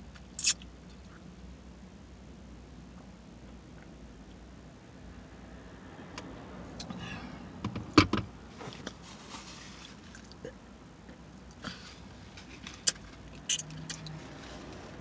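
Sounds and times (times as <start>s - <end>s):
mouth smacks and chewing: 0.2s - 1.2s, 12.7s - 14.2s.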